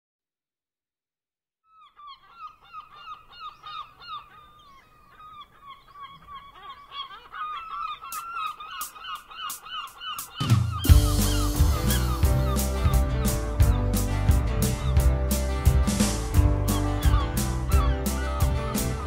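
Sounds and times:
gulls calling: 1.7 - 19.0
loud music with heavy bass: 10.9 - 19.0.

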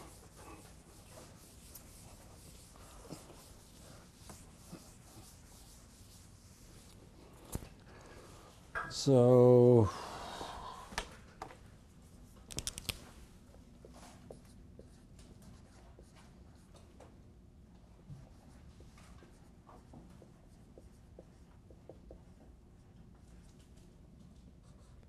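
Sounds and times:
sharp clicks: 12.5 - 13.0.

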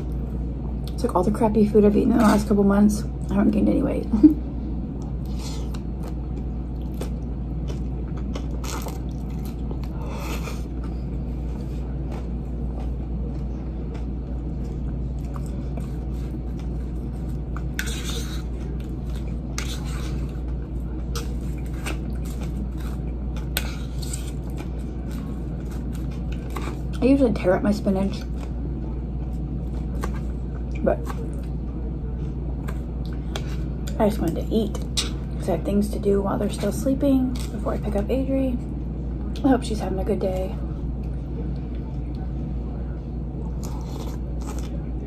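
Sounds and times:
steady low hum: 0.0 - 45.0
wet chewing of salad: 5.0 - 27.0, 43.5 - 44.8.

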